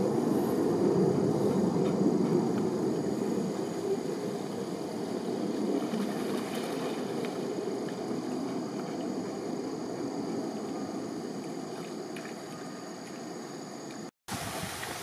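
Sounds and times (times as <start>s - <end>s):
dogs splashing in water: 5.8s - 9.1s
flowing water rushing: 14.3s - 15.0s.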